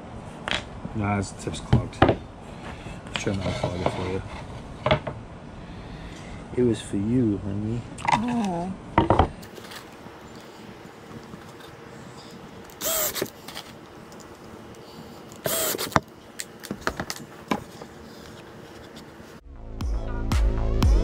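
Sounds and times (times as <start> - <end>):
cordless drill into plywood: 12.8 - 13.3, 15.4 - 16.0.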